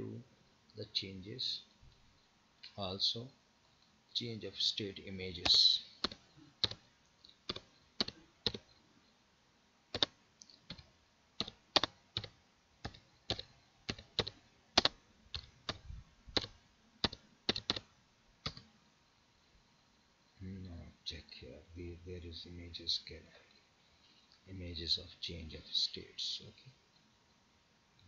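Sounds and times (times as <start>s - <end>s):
keyboard keystrokes: 7.5s - 8.6s, 11.4s - 15.8s, 16.4s - 18.6s.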